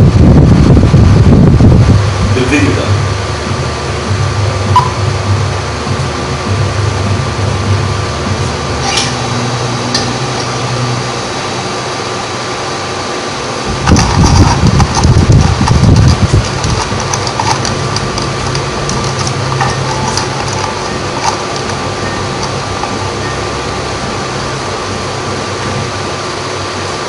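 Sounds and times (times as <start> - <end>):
loud deep rumble: 0.0 - 26.9
steady low drone: 0.0 - 27.0
scattered clicks: 13.8 - 23.0.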